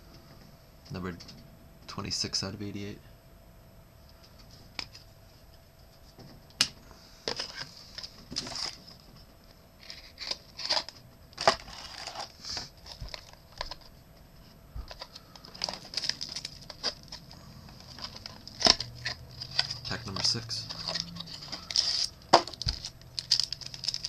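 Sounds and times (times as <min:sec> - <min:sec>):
rustling and crinkling: 0:07.2 - 0:24.0.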